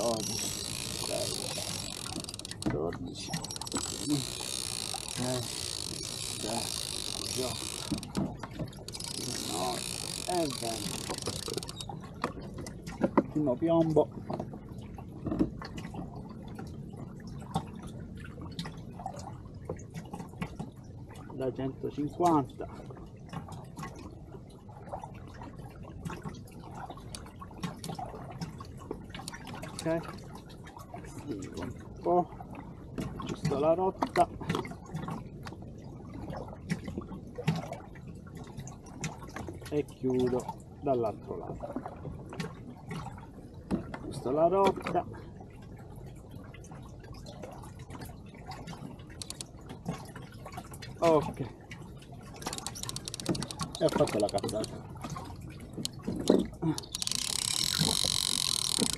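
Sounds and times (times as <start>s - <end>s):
water dripping: 0.0s - 13.0s, 52.3s - 58.9s
light clicks and taps: 0.0s - 14.5s, 49.1s - 49.5s, 52.4s - 54.8s, 55.8s - 58.9s
water lapping against a hull: 0.0s - 58.9s.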